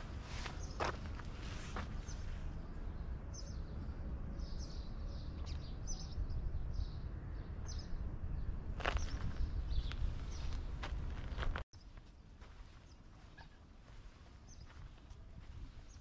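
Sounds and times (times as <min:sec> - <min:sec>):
footstep: 0:00.0 - 0:02.4, 0:08.8 - 0:16.0
small birds chirping: 0:00.0 - 0:16.0.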